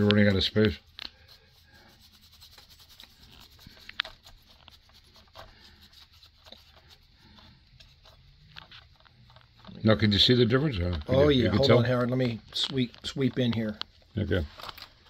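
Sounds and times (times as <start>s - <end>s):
brush rubbing on metal model: 0.0s - 10.9s.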